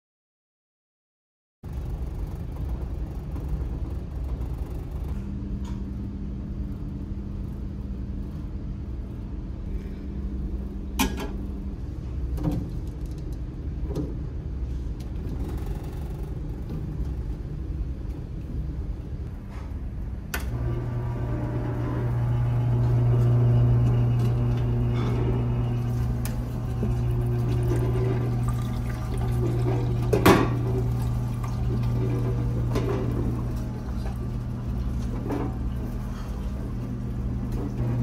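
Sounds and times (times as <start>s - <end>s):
ship machinery rumble: 1.7s - 38.0s
juicer motor humming: 20.5s - 38.0s.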